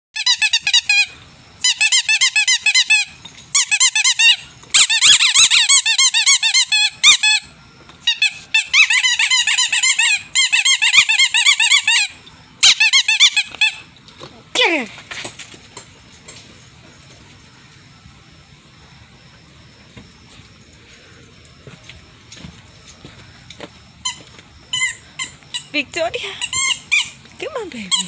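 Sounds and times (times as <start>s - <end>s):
puppies squealing: 0.2s - 13.8s, 26.4s - 28.0s.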